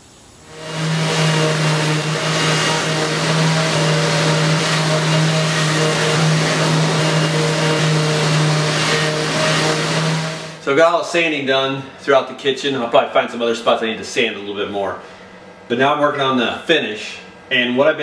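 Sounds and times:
orbital sander on wood: 0.5s - 10.6s.

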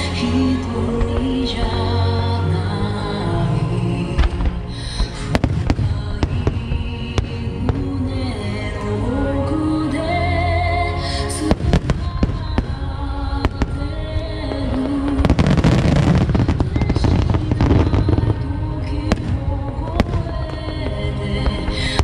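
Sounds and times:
slow sung ballad: 0.0s - 22.0s
fireworks bangs and crackling: 4.2s - 8.2s, 11.4s - 22.0s.

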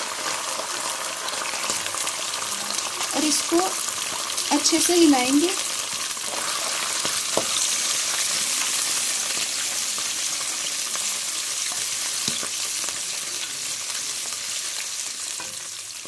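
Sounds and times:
oil sizzling in a pan: 0.0s - 16.0s
spatula stirring sauce: 5.6s - 10.1s.

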